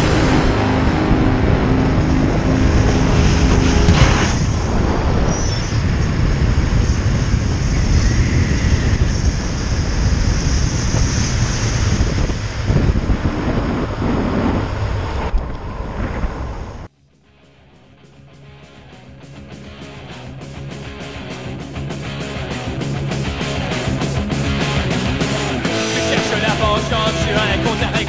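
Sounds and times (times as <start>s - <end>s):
wind rushing over microphone: 0.0s - 16.9s
longboard wheels rolling on asphalt: 3.3s - 16.9s.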